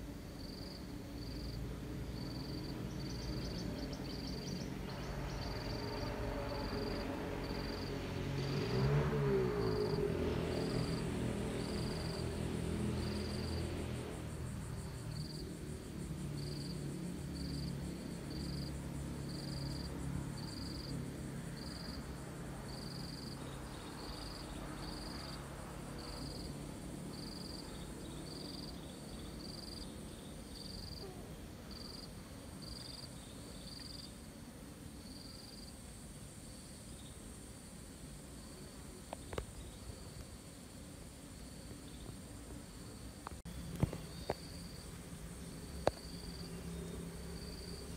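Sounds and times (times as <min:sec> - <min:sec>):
insect chirping: 0:00.1 - 0:47.9.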